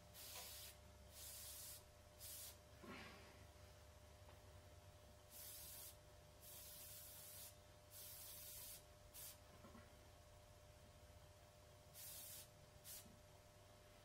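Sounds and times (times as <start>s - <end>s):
airbrush spraying hiss: 0.0s - 2.6s, 5.3s - 9.4s, 11.9s - 13.2s.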